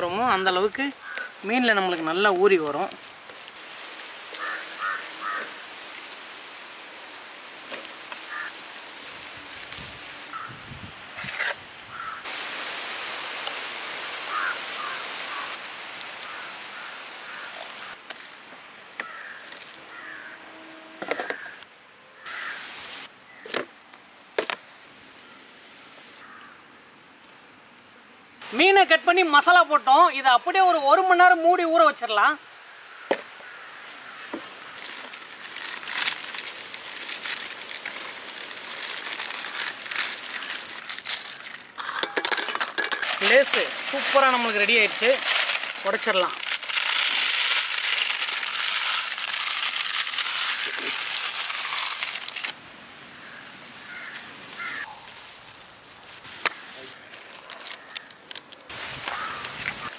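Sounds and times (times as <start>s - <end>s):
birds calling: 4.3s - 6.0s, 11.9s - 12.3s, 14.2s - 15.6s, 53.1s - 55.1s
foil chip packets crinkling: 34.7s - 52.6s, 57.1s - 59.9s.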